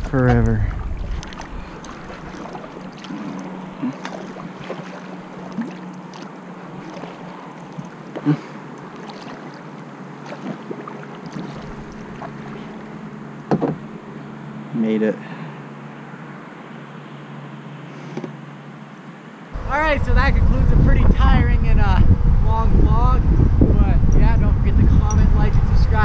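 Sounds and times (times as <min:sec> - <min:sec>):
paddle splashing in water: 0:00.0 - 0:13.9
light knocks: 0:13.5 - 0:13.9.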